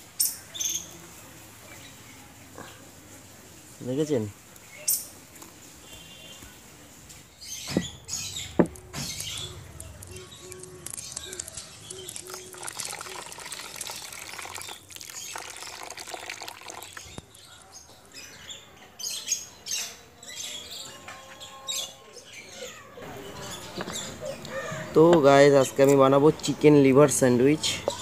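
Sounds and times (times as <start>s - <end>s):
bird calling: 7.4s - 13.2s, 22.6s - 25.0s
water splashing over meat: 11.8s - 17.2s.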